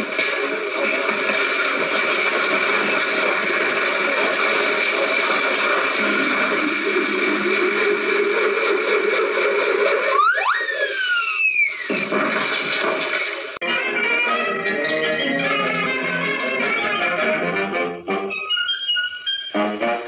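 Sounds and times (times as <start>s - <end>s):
hissy distorted soundtrack music: 13.6s - 18.7s.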